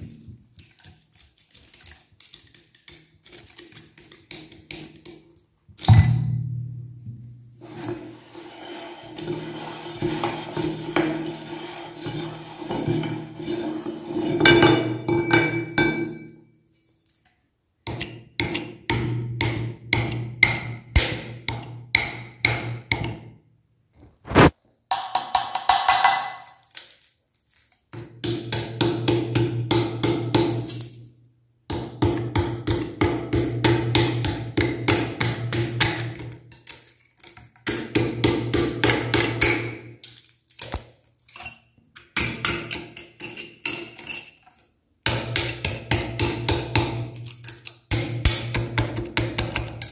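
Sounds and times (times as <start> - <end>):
metal tool scraping and knocking: 7.6 - 16.4, 41.3 - 49.9.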